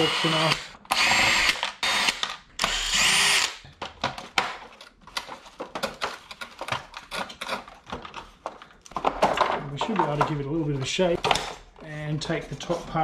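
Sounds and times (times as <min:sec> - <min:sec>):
cordless drill whining: 0:00.0 - 0:03.6.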